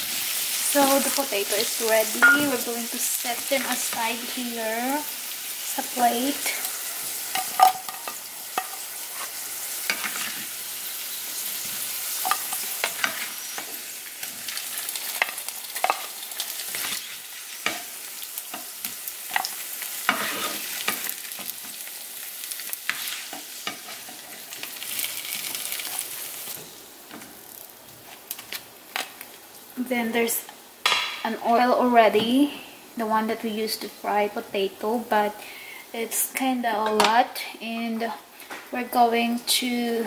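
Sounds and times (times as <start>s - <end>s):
potatoes sizzling in oil: 0.0s - 40.0s
spatula scraping pan: 19.3s - 21.1s.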